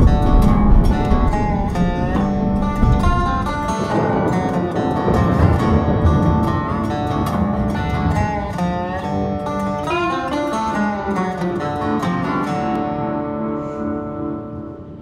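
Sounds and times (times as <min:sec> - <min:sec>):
plucked guitar music: 0:00.0 - 0:15.0.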